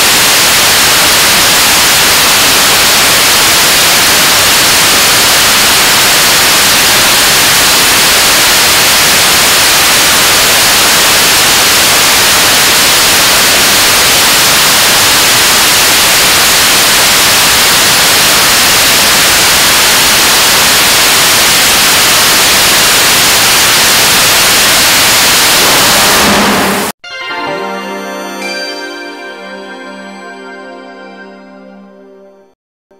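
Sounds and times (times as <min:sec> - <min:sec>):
rocket engine roaring: 0:18.0 - 0:27.0.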